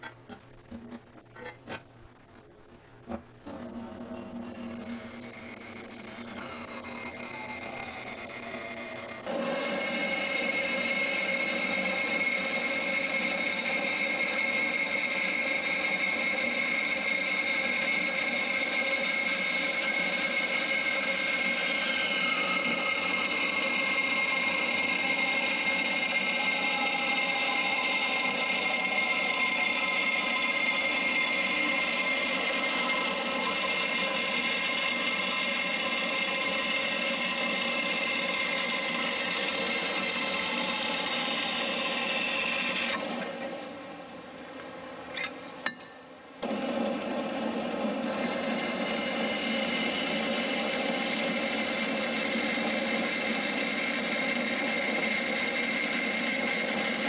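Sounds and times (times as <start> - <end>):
bandsaw cutting metal: 3.5 - 43.1.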